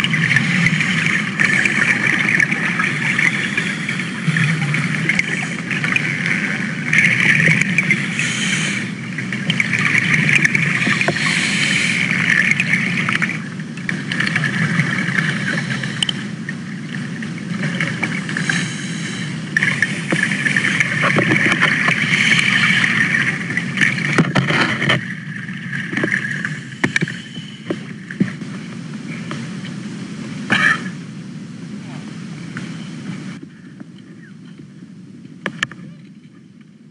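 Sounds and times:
motor running steadily: 0.0s - 29.7s.

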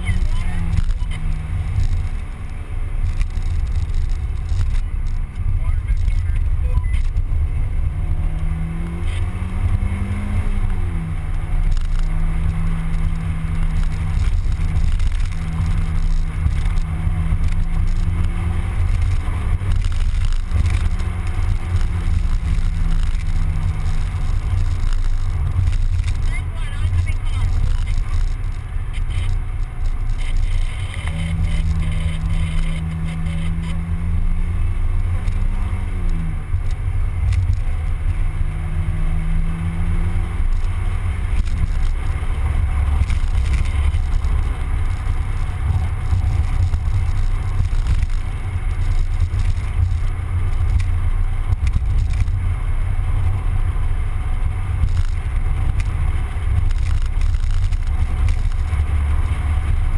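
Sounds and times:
car engine driving: 0.0s - 59.9s
wind and road noise rumble: 0.0s - 59.9s.

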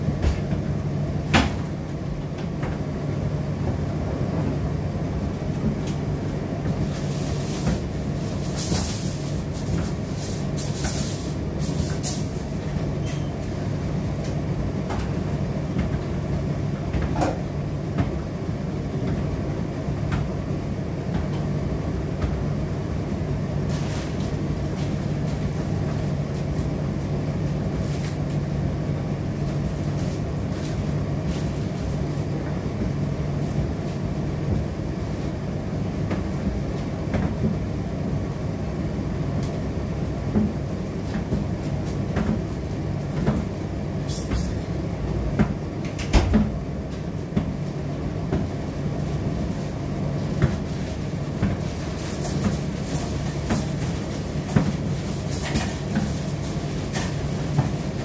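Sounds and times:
tumble dryer motor hum: 0.0s - 58.0s.

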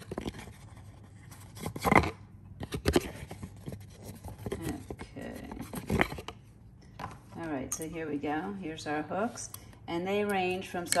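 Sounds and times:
cardboard insert rustling: 0.0s - 6.4s.

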